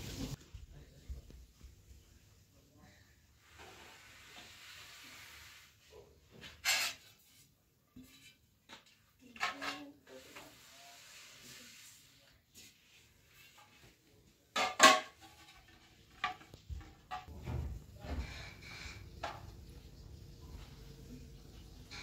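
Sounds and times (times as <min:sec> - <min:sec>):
metal trays clattering: 0:14.6 - 0:17.8.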